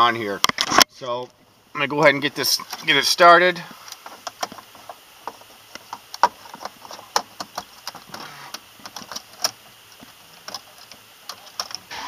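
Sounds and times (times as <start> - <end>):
sharp clicks and knocks: 3.9 - 11.9.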